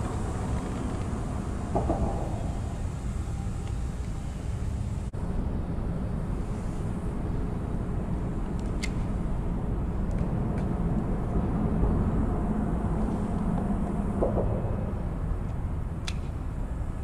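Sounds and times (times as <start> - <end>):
highway traffic rumble: 0.0 - 17.0.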